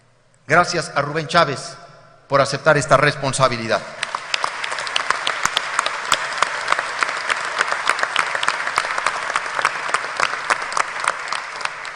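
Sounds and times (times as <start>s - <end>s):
audience applauding: 4.0s - 11.9s.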